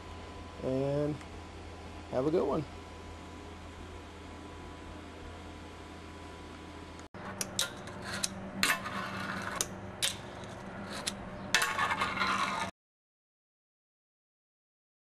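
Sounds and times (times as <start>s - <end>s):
rough scrape: 7.2s - 12.8s
fingerboard rolling on glass: 7.3s - 12.7s.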